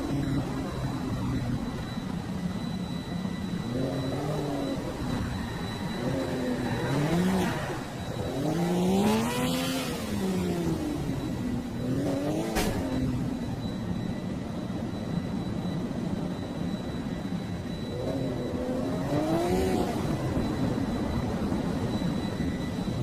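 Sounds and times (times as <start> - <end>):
car engine revving: 3.5 - 13.4, 17.9 - 20.5.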